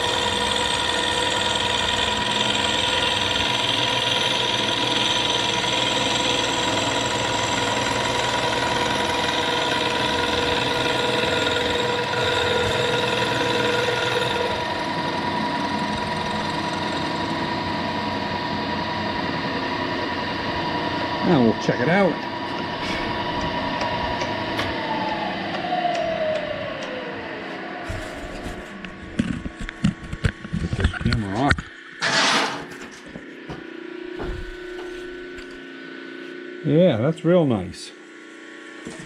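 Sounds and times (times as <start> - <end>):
milling machine cutting metal: 0.0 - 27.1, 31.4 - 32.7.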